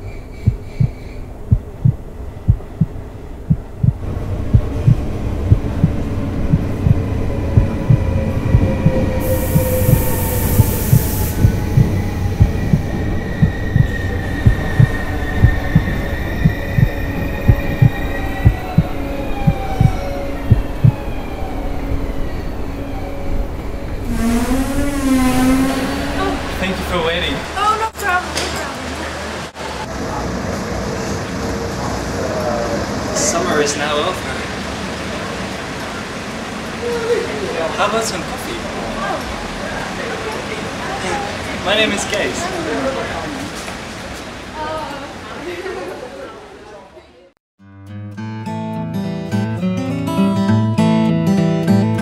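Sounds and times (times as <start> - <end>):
train pulling in: 0.0 - 46.8
heartbeat thumping: 0.4 - 21.0
train brakes squealing: 8.2 - 18.5, 23.9 - 26.9
burst of hiss: 9.2 - 11.6.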